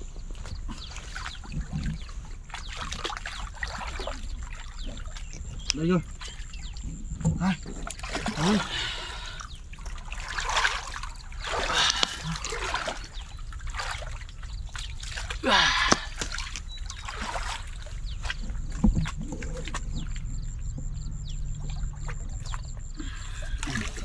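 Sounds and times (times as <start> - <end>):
muddy water splashing: 0.0 - 24.0.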